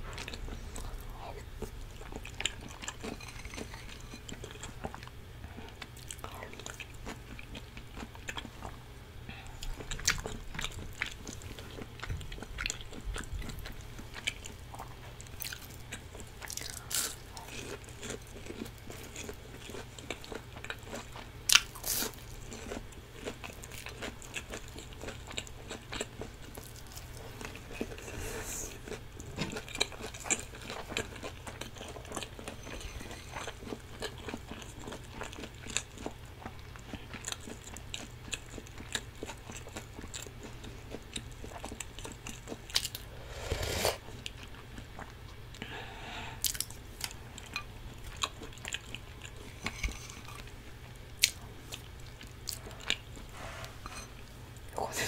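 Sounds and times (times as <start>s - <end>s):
person chewing and biting: 0.1s - 8.8s, 46.4s - 47.5s.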